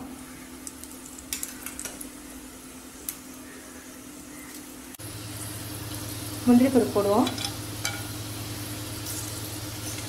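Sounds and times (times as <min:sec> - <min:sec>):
peppercorns sizzling in hot oil: 0:00.0 - 0:10.0
steady low hum: 0:02.0 - 0:10.0.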